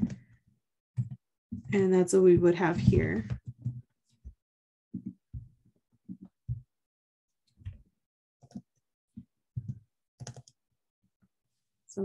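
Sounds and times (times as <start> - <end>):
computer keyboard typing: 8.4 - 8.7, 9.6 - 10.6.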